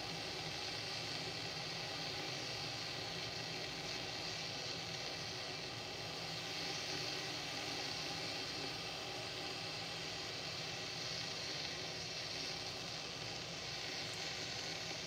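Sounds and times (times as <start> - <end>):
kettle hissing: 0.0 - 15.0.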